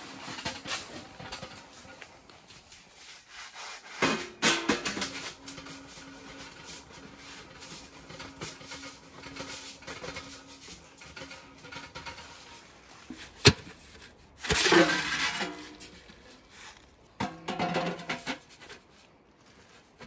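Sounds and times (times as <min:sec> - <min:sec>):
metal stovepipe scraping: 0:00.0 - 0:02.2, 0:02.9 - 0:20.0
sheet metal clanks: 0:04.0 - 0:13.6, 0:17.1 - 0:18.5.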